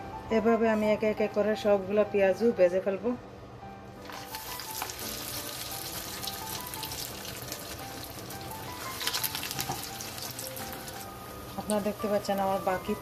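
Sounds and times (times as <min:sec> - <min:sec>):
soft background music: 0:00.0 - 0:13.0
hot oil sizzling and crackling: 0:04.0 - 0:12.9.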